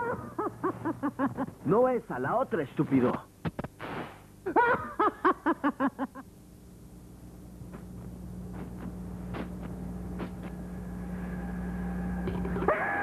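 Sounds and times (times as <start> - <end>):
low steady drone hum: 6.4 - 13.0
high steady tone: 10.4 - 13.0.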